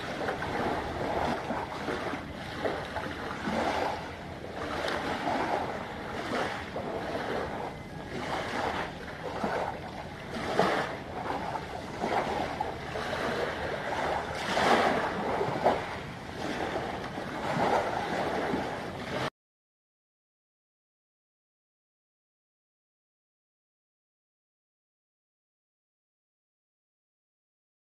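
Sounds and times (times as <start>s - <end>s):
small waves washing on shore: 0.0s - 19.3s
wind on microphone: 0.0s - 19.3s.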